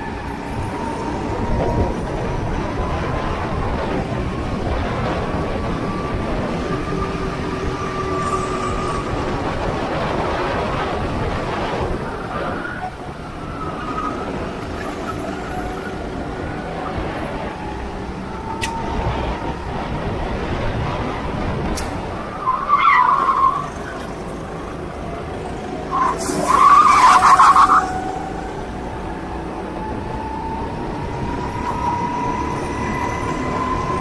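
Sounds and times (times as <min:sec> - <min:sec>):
steady rumbling noise: 0:00.0 - 0:22.7
go-kart engine racing: 0:00.0 - 0:34.0.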